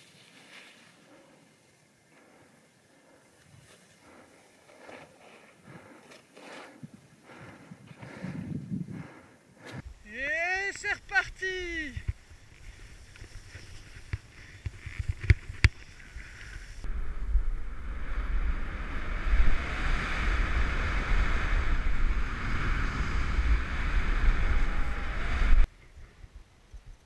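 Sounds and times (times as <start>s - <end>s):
skis hissing through powder: 0.0s - 1.4s, 9.9s - 16.8s
skis sliding over snow: 0.0s - 1.6s, 10.1s - 16.8s
wind buffeting microphone: 6.8s - 10.0s, 16.7s - 25.7s.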